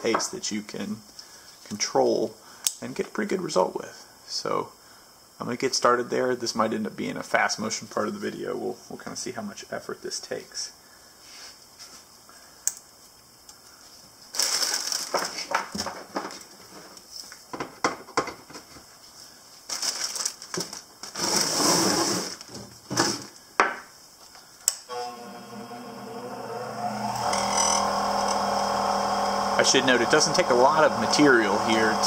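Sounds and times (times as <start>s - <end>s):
plastic bag crinkling: 14.3s - 16.5s, 19.6s - 21.6s
bench grinder motor whine: 24.9s - 32.0s.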